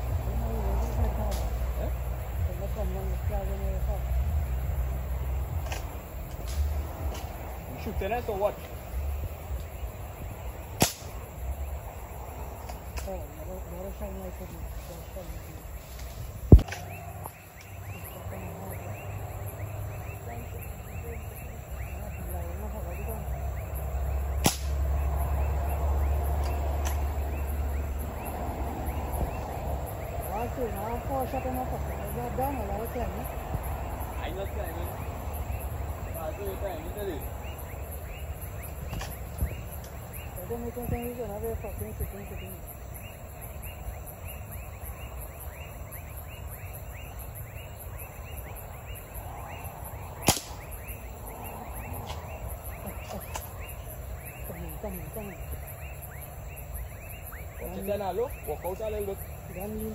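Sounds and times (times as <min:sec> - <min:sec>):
night insects chirping: 0:00.0 - 0:59.9
sharp crack: 0:00.9 - 0:01.8, 0:05.6 - 0:07.9, 0:10.7 - 0:11.4, 0:16.0 - 0:17.8, 0:24.3 - 0:25.2, 0:26.3 - 0:27.2, 0:50.2 - 0:51.1
sharp loud crack: 0:10.8 - 0:11.3, 0:24.4 - 0:25.0, 0:50.2 - 0:51.0.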